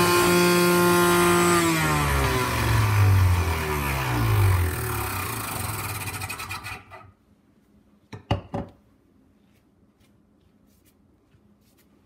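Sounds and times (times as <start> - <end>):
juicer motor running: 0.0 - 7.1.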